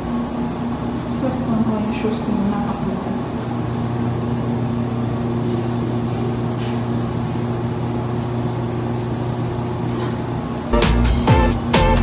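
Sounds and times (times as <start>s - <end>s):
low buzzing machine hum: 0.0s - 12.0s.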